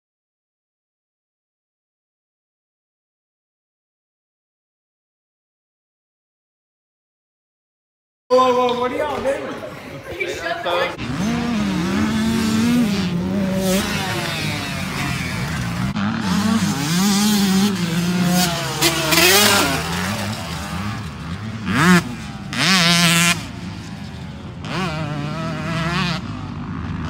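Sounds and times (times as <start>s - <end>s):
dirt bike engines revving: 8.3s - 27.0s.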